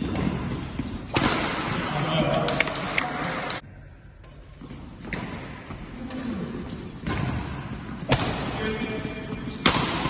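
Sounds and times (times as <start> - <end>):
rackets striking shuttlecock: 9.6 - 10.0.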